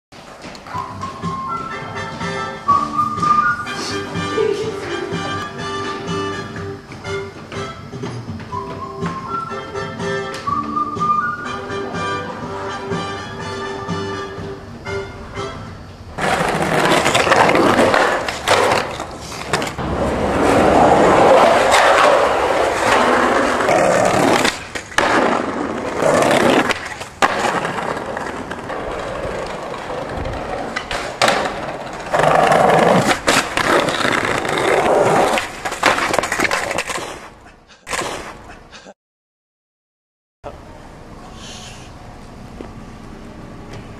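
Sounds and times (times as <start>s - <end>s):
skateboard wheels on rough pavement: 0.2s - 9.6s, 16.2s - 38.3s
skateboard clacking on ground: 16.2s - 38.4s.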